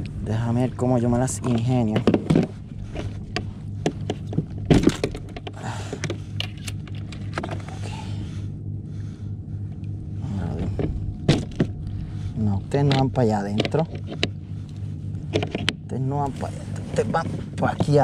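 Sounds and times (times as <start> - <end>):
rustling: 0.0 - 8.3.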